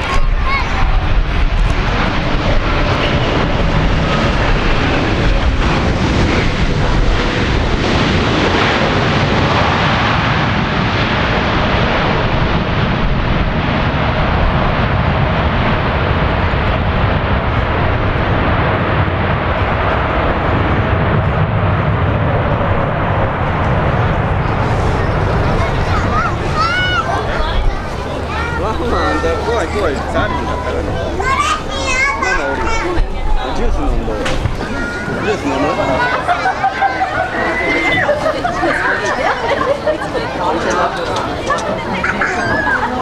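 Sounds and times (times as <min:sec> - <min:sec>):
jet engine roar: 0:00.0 - 0:43.0.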